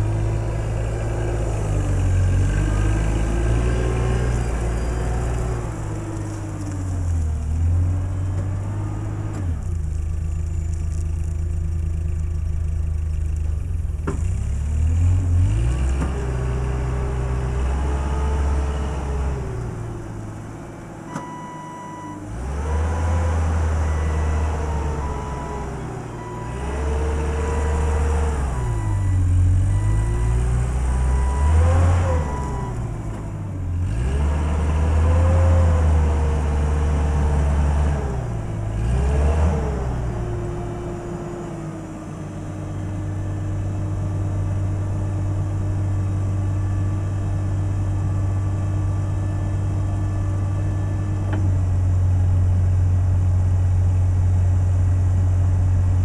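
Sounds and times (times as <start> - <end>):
forklift engine revving: 14.4 - 51.5.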